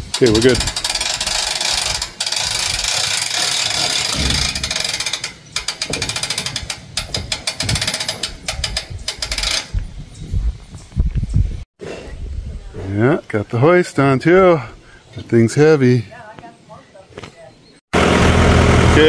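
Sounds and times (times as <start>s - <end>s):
ratchet-like metallic clicking: 0.0s - 9.8s.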